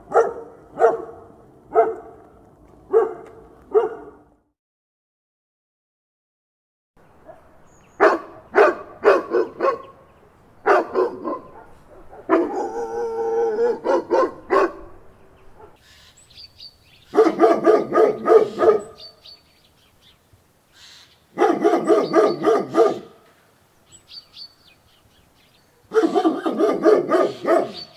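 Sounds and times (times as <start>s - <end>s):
large dogs barking: 0.0s - 4.4s, 7.2s - 15.8s, 17.1s - 19.1s, 21.3s - 23.2s, 25.8s - 27.9s.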